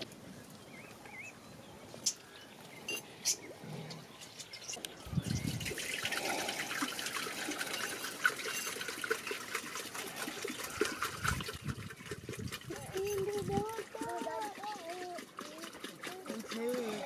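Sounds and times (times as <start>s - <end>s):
liquid pouring into metal pot: 5.2s - 17.0s.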